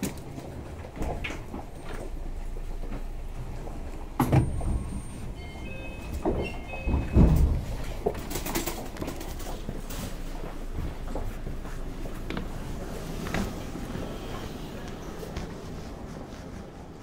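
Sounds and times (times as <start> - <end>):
train low steady hum: 0.0 - 17.0.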